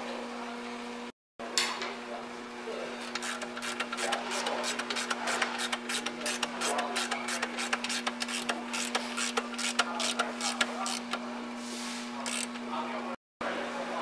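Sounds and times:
ratchet wrench clicking: 3.1 - 11.2, 12.3 - 12.6.

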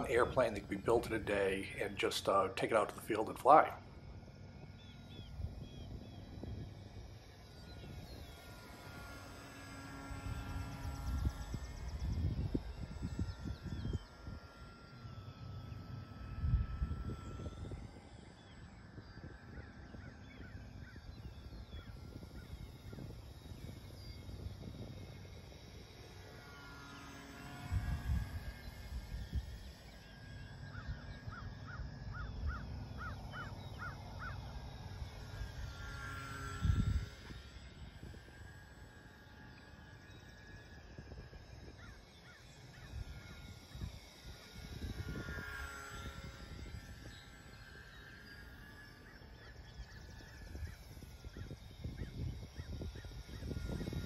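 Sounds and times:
model airplane motor whine: 0.0 - 54.0
wind gusts on microphone: 5.1 - 18.1, 18.7 - 25.5, 36.5 - 39.1, 42.7 - 48.0, 49.4 - 54.0.

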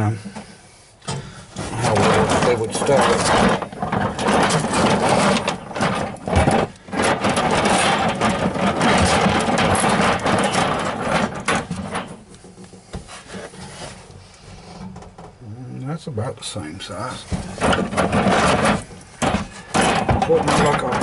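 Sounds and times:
metal springs clattering: 1.0 - 13.5, 17.4 - 21.0.

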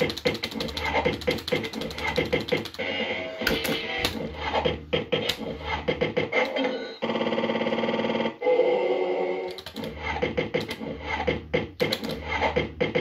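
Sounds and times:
electronic slot machine tones: 5.9 - 8.7.

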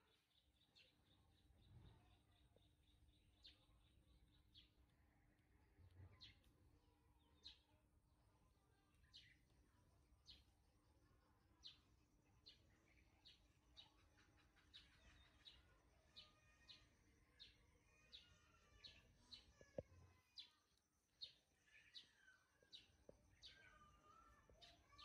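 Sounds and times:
bird chirping faintly: 0.0 - 25.0.

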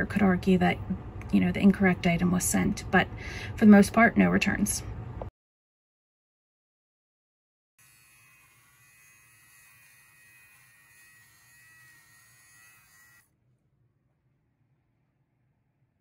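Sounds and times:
fabric shaver buzzing: 7.8 - 13.3.

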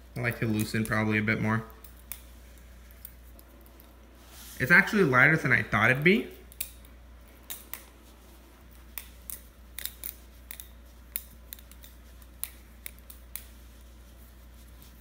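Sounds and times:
butterfly knife clicking: 9.0 - 13.5.

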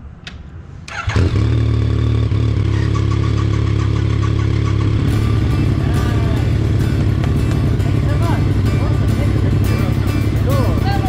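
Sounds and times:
motorcycle starter cranking: 0.9 - 5.8
motorcycle engine idling: 1.0 - 11.0.

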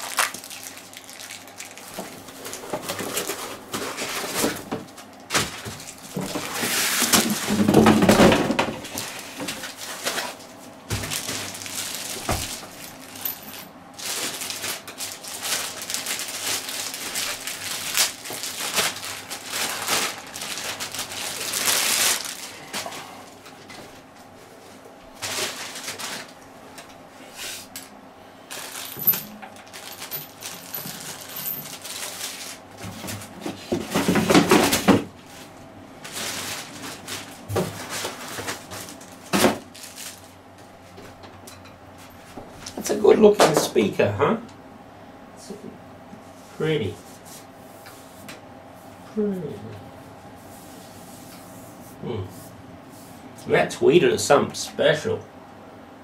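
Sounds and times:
plastic bag crinkling: 0.0 - 4.4, 8.9 - 23.0, 25.2 - 26.4, 28.5 - 32.8, 36.0 - 40.4
cardboard and foam rustling: 0.0 - 23.2, 24.6 - 26.4, 28.5 - 40.4.

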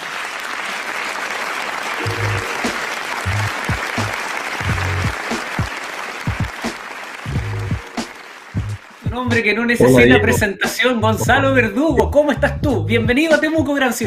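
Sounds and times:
applause: 0.0 - 10.9
background music with bass: 3.3 - 5.1, 7.3 - 7.8, 8.6 - 14.0.

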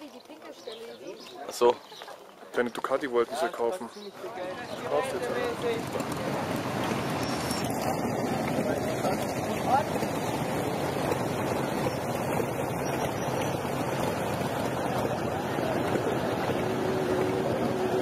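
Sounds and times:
many motorcycle engines running: 4.4 - 18.0.

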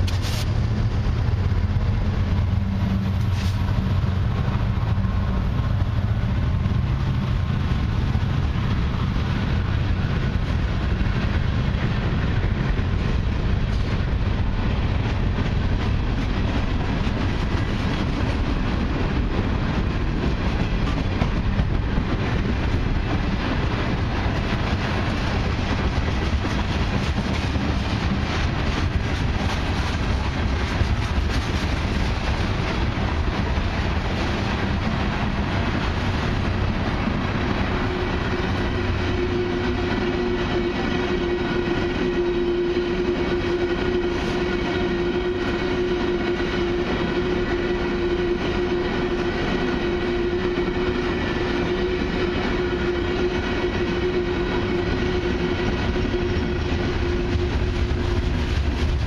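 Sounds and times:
diesel locomotive droning: 0.0 - 59.0
train wheels rumbling and clattering: 0.0 - 59.0.

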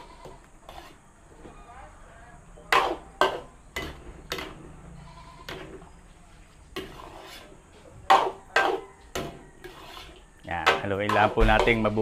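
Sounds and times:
utensil clanking against pot: 8.1 - 12.0.

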